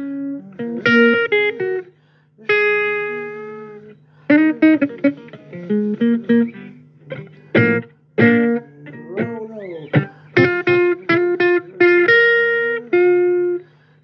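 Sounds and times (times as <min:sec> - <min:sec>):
blues guitar plucked notes: 0:00.0 - 0:01.9, 0:02.5 - 0:13.6.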